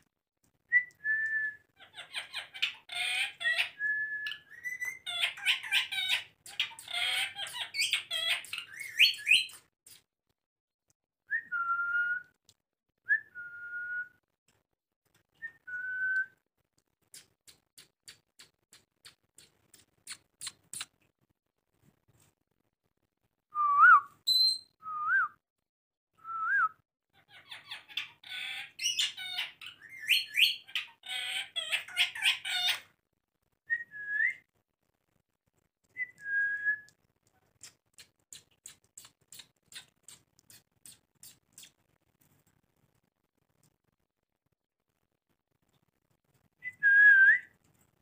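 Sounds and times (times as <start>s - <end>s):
parrots squawky chatter: 1.8s - 3.8s, 4.6s - 9.3s, 27.2s - 32.9s.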